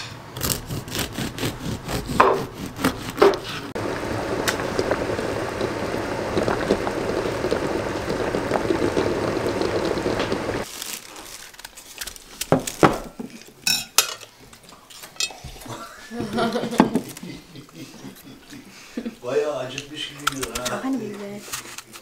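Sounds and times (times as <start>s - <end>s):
food sizzling on stove: 3.7s - 10.7s
dishes and cutlery clinking: 13.2s - 14.3s.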